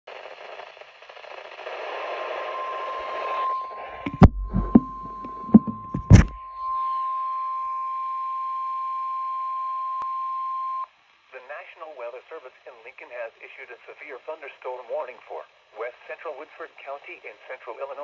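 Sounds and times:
radio hiss: 0:00.1 - 0:06.4, 0:10.9 - 0:18.0
weather alarm tone: 0:02.4 - 0:10.8
sharp knocks: 0:04.1 - 0:06.4.

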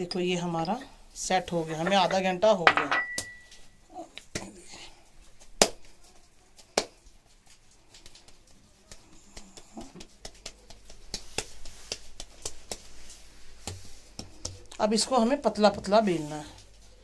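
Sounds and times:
hands slapping pizza dough: 0:05.2 - 0:16.8.

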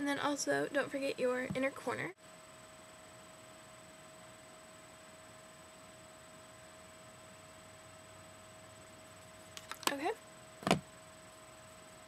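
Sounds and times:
faint constant hum: 0:00.0 - 0:12.0.

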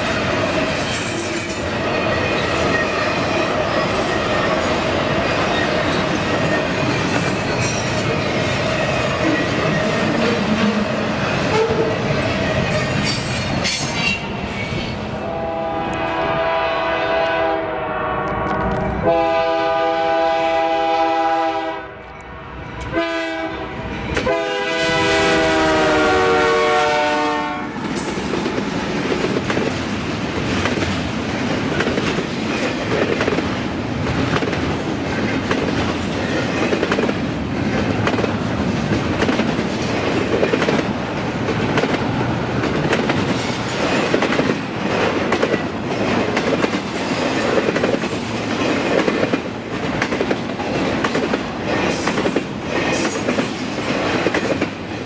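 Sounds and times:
train wheels on rails: 0:00.0 - 0:17.6, 0:18.2 - 0:55.0
locomotive air horn blasts: 0:11.5 - 0:11.9, 0:15.2 - 0:22.0, 0:22.8 - 0:27.8
wheels clicking over rail joints: 0:27.8 - 0:54.9.

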